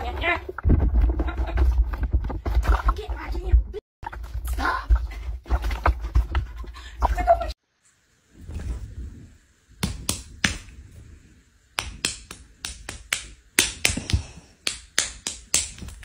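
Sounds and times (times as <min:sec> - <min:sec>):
soft rustle: 0:07.8 - 0:09.5.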